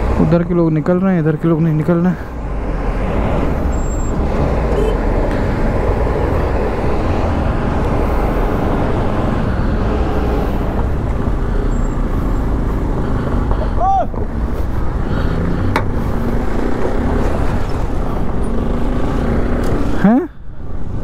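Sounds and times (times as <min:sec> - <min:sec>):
road and wind noise: 0:00.0 - 0:21.0
traffic vehicles: 0:00.0 - 0:21.0.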